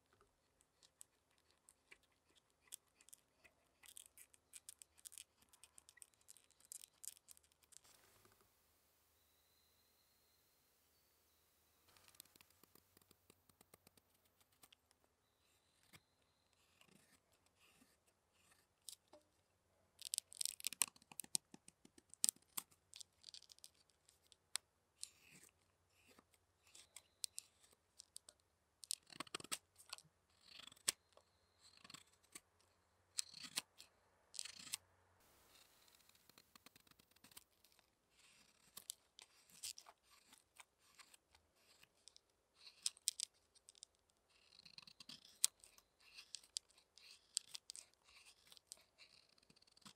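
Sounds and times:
knife scraping wood: 44.4 - 49.9.

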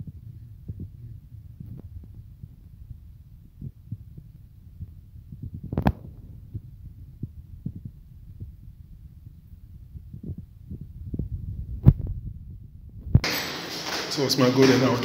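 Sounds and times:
wind rumble on microphone: 0.0 - 13.2.

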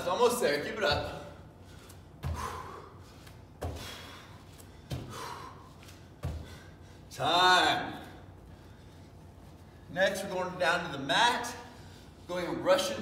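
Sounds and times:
bare feet thumping on a mat: 2.1 - 6.7.

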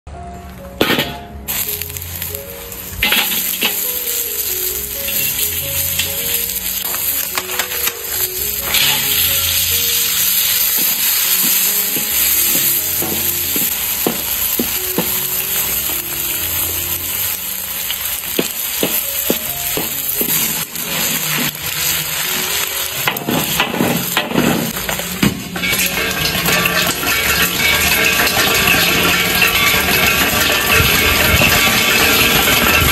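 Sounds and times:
crayfish sizzling in wok: 1.3 - 32.9
wooden spatula clicking and scraping: 5.0 - 16.0, 17.8 - 32.9.

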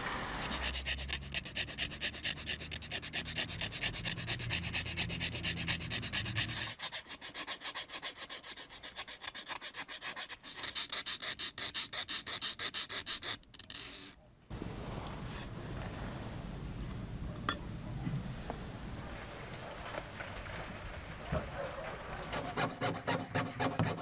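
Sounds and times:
file scraping metal edge: 0.4 - 14.2, 22.2 - 24.0.

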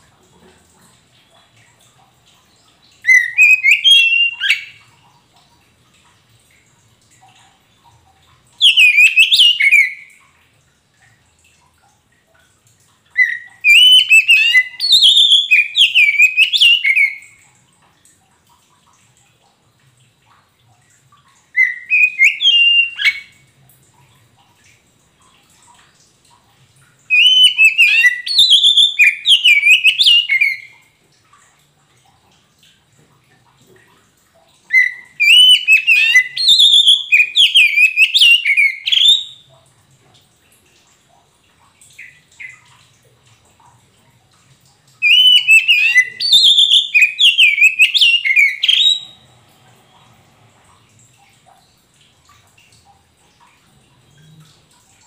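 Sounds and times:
bird singing whistled notes: 3.0 - 4.8, 8.6 - 10.1, 13.2 - 17.3, 21.6 - 23.3, 27.1 - 30.7, 34.7 - 39.4, 45.0 - 49.2.

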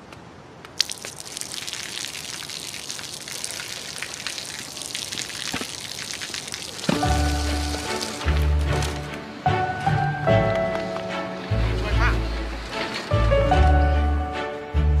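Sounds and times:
water splashing onto pavement: 0.6 - 9.1.

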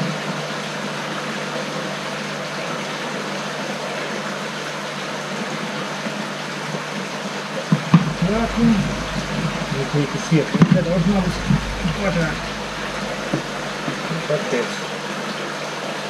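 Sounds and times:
circulating water rushing: 0.0 - 14.8
pumps humming: 8.0 - 14.5.

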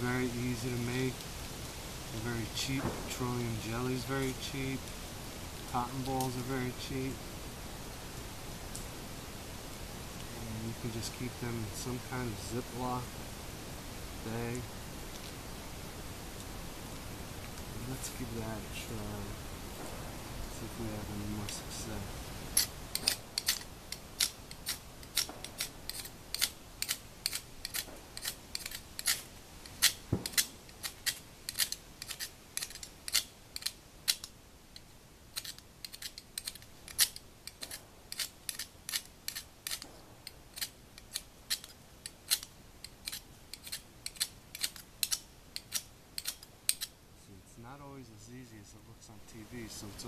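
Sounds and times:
striker scraping fire-starter rod: 5.7 - 7.0, 22.5 - 47.0.

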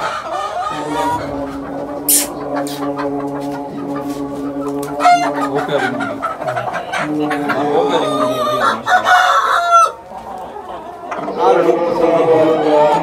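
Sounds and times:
young roosters clucking and calling: 0.0 - 13.0
steady low drone: 0.8 - 3.4.

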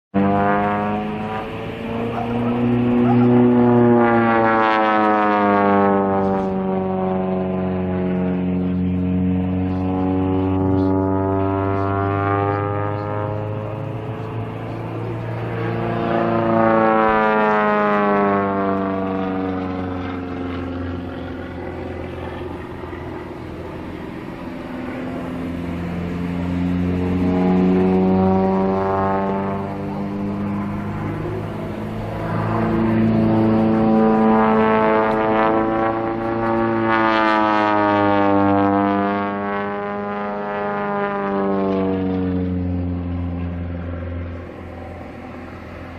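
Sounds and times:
propeller plane engine: 0.1 - 45.9.

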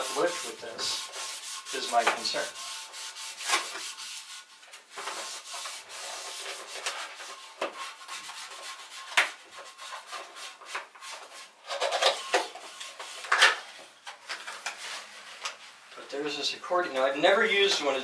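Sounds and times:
gloved hand scrubbing porcelain: 0.0 - 11.6.

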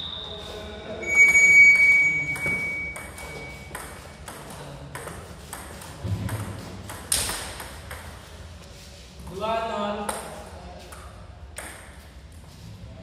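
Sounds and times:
ping-pong ball clicking: 2.2 - 8.1.

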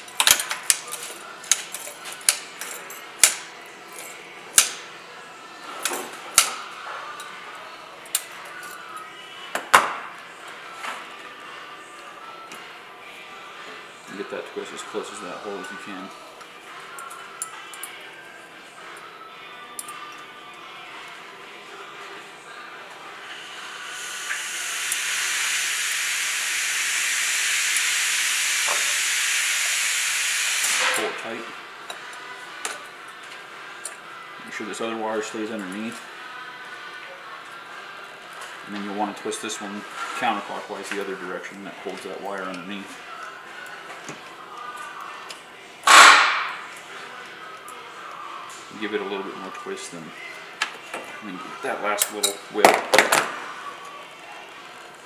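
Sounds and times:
gas hissing: 23.2 - 31.5.

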